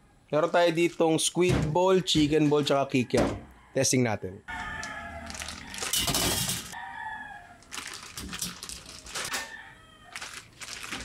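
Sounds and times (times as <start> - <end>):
plastic packets rustling: 4.8 - 6.8, 7.5 - 11.0
frozen pieces rattling into basket: 5.2 - 6.8, 7.6 - 9.5, 10.1 - 11.0.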